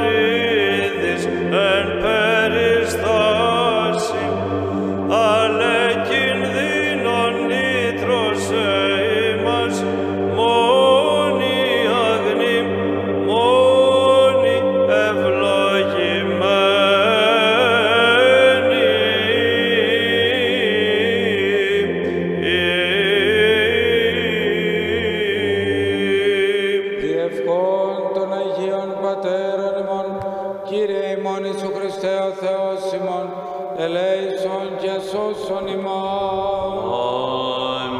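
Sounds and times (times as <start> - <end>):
steady low drone: 0.0 - 27.2
man chanting a hymn: 0.0 - 37.9.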